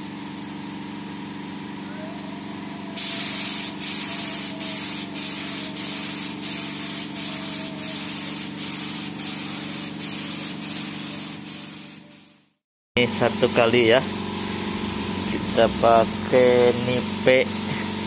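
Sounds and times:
spray gun hissing: 3.0s - 12.3s, 13.2s - 18.0s
low machine hum: 13.0s - 18.0s.

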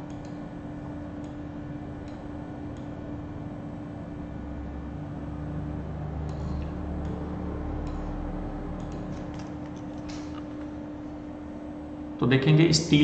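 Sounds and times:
steady hum: 0.0s - 13.0s
low rumble: 2.8s - 12.1s.

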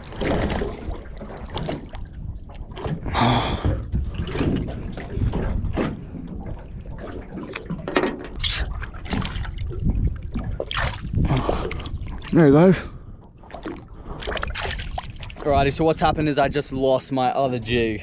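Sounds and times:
seawater splashing: 13.4s - 15.6s.

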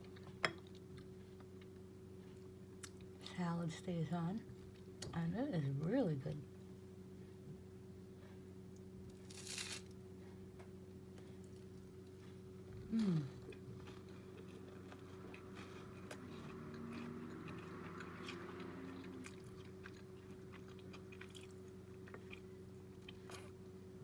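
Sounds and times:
steady low hum: 0.0s - 24.0s
chewing crunchy toast: 11.4s - 23.7s.

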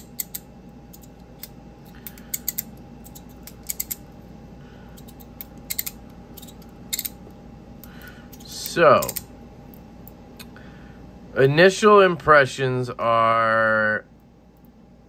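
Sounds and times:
metal fidget toy clicking: 0.0s - 1.5s, 2.1s - 4.0s, 5.0s - 7.1s, 9.0s - 9.2s
faint steady hum: 0.0s - 15.0s.

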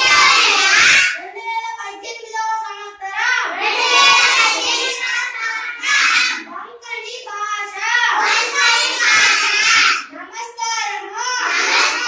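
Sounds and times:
children singing: 0.0s - 1.2s, 3.6s - 6.4s, 8.1s - 10.1s, 11.3s - 12.0s.

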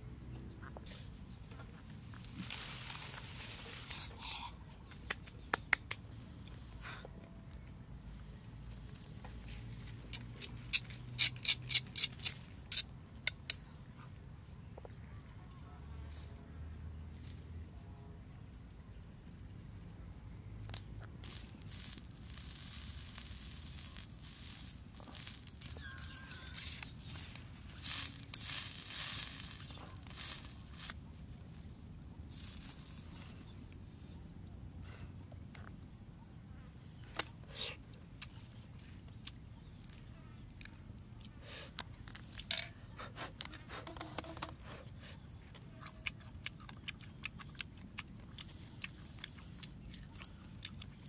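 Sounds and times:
rustling and scraping of sticks: 0.6s - 4.2s, 8.4s - 13.6s, 16.0s - 17.8s, 20.7s - 33.9s, 41.8s - 45.2s.

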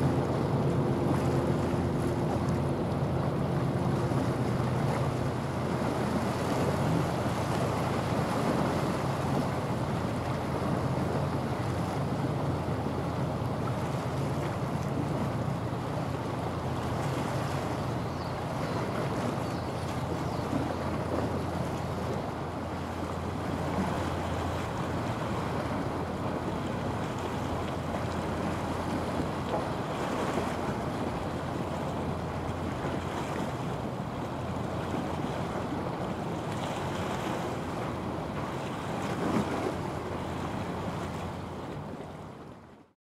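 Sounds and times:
low steady rumble: 0.0s - 43.0s
waves washing along shore: 0.0s - 43.0s.

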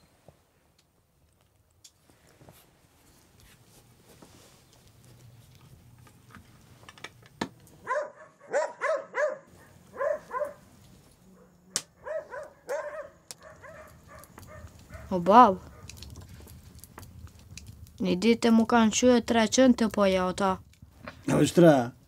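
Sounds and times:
dog barking: 7.8s - 10.7s, 11.3s - 16.0s.

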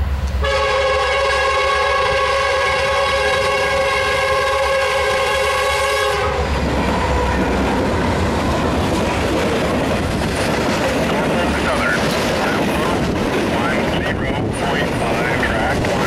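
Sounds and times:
freight train passing: 0.0s - 16.0s
locomotive air horn chord: 0.4s - 6.5s.

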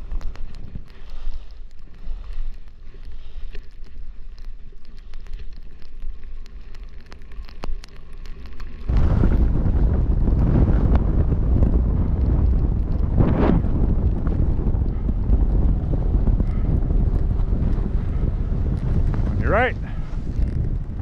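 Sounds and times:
skis scraping over snow: 7.3s - 21.0s
wind buffeting microphone: 8.9s - 21.0s.

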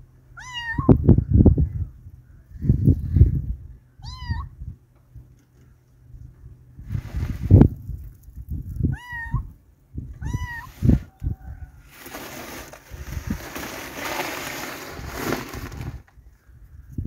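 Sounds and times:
kitten meowing: 0.4s - 1.0s, 4.0s - 4.5s, 8.9s - 9.5s, 10.2s - 10.7s.

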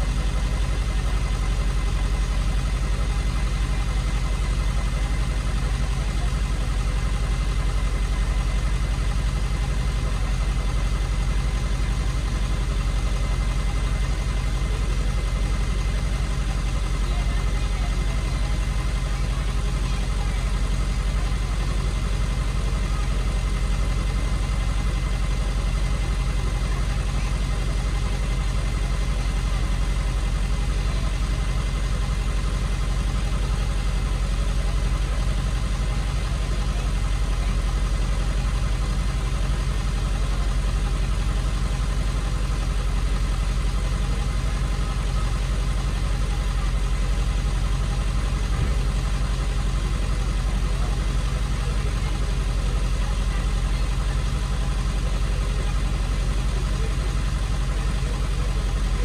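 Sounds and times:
truck engine idling: 0.0s - 59.0s.

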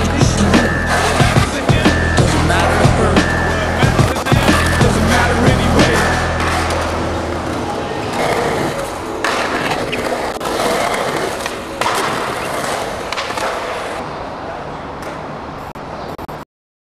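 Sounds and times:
skateboard wheels rolling on concrete: 0.0s - 16.4s
skateboard clacks on concrete: 5.8s - 14.0s.

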